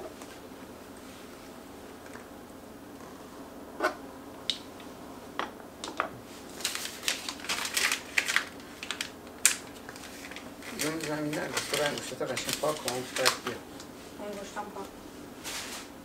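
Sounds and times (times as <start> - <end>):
paper tissue rustling: 6.3 - 14.5, 15.4 - 16.0.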